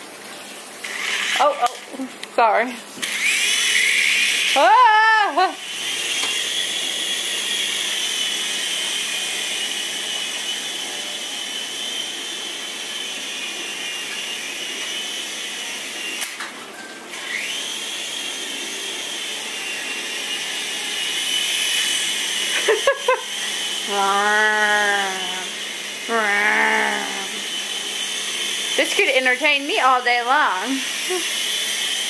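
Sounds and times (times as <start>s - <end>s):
toy helicopter motor whining: 0.8s - 1.9s, 3.0s - 16.4s, 17.1s - 32.0s.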